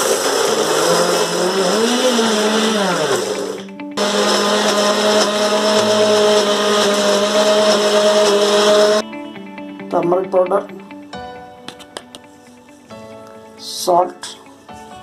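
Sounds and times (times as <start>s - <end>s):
electric mixer grinder running: 0.0s - 9.0s.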